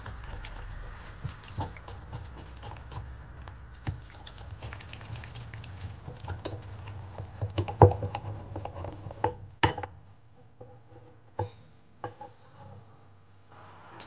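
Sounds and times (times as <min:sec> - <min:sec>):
whisk scraping glass bowl: 0:00.0 - 0:09.4.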